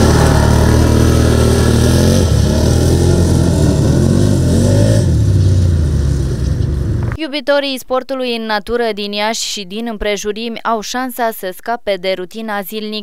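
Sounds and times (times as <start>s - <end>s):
quad bike engines revving: 0.0s - 7.2s.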